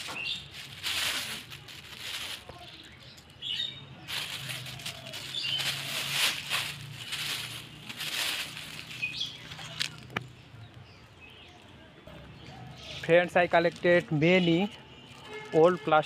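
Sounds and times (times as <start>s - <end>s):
plastic bag crinkling and rustling: 0.0s - 3.2s, 4.1s - 10.2s.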